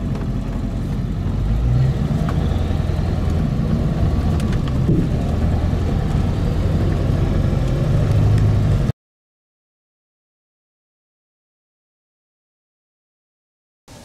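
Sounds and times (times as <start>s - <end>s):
engine and road noise drone: 0.0s - 9.0s.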